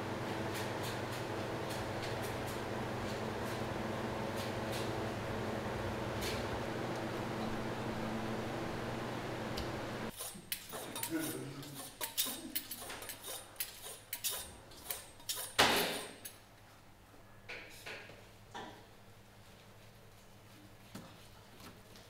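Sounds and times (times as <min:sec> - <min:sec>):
machine hum: 0:00.0 - 0:10.1
knife scraping on sharpening steel: 0:10.1 - 0:15.6.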